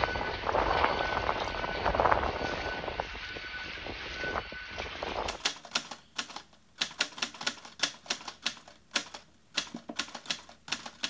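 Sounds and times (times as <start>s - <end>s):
typewriter keystrokes: 5.3s - 11.0s.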